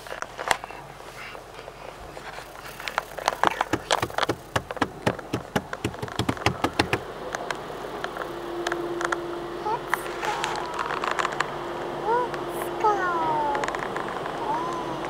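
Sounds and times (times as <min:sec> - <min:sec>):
car wash water spray: 0:02.2 - 0:07.3
knocking on car body: 0:03.7 - 0:07.0.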